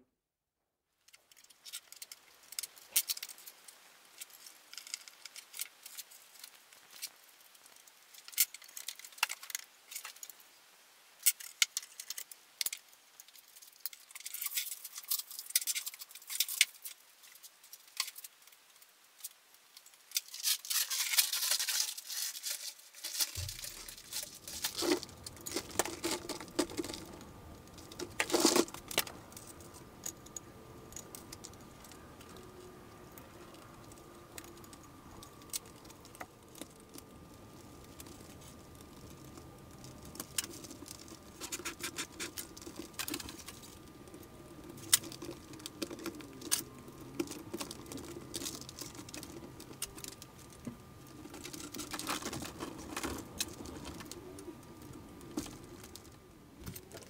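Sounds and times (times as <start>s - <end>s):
low steady hum: 23.0s - 57.0s.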